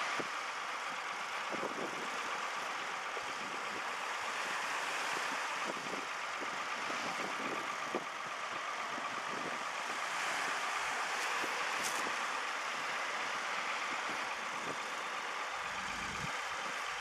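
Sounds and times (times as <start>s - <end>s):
tractor engine idling: 0.0s - 17.0s
wind noise on microphone: 1.5s - 2.2s, 5.1s - 8.2s, 8.9s - 10.4s, 15.7s - 17.0s.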